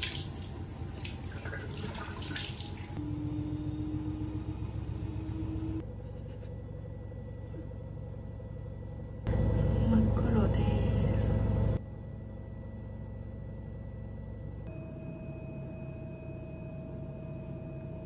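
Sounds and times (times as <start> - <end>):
tap running and water splashing: 0.0 - 3.0
low room hum: 0.0 - 18.0
faint steady tone: 6.8 - 18.0.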